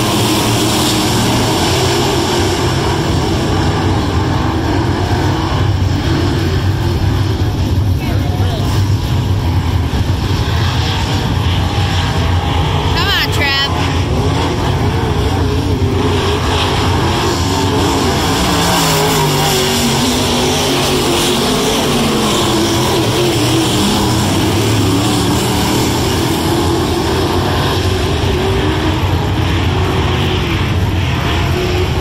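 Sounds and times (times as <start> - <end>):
race car engines revving: 0.0 - 32.0.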